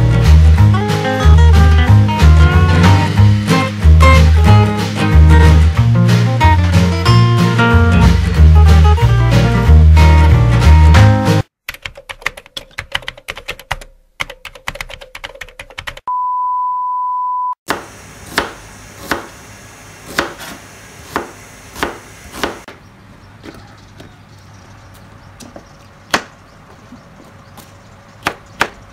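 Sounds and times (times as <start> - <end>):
background music: 0.0 - 11.5
rapid clicking: 11.6 - 16.1
steady beep: 16.1 - 17.6
knife chopping on cutting board: 17.7 - 19.4, 20.1 - 22.8.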